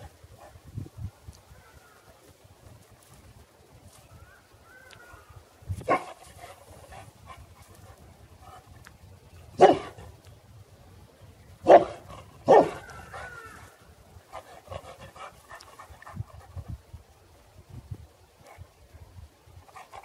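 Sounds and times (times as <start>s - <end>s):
dog barking: 9.6s - 10.0s, 11.6s - 12.8s.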